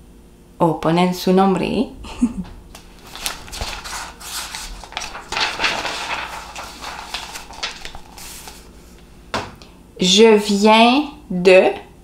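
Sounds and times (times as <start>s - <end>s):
paper cards rustling: 2.8s - 9.1s.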